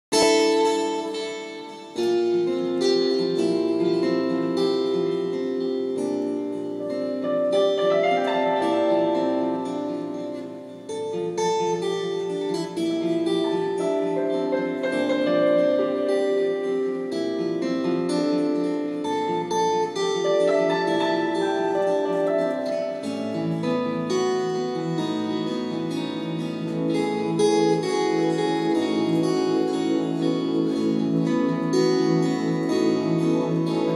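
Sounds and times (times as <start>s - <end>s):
acoustic guitar picking: 0.1s - 33.9s
keyboard chords: 0.1s - 33.9s.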